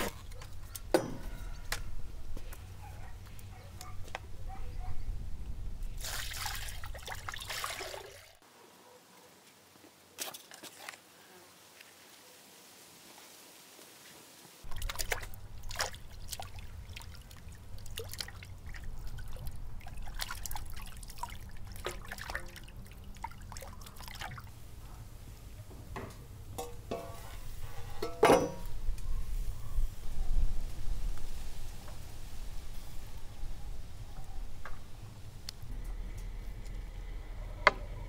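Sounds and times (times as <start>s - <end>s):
steady low hum: 0.0s - 6.0s
liquid trickling and dripping: 5.8s - 8.4s, 14.6s - 24.7s.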